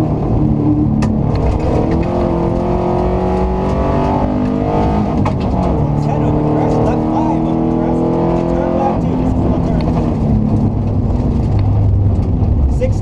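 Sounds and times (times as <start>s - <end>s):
car engine pulling hard: 0.0s - 13.0s
gravel striking car: 3.6s - 5.9s.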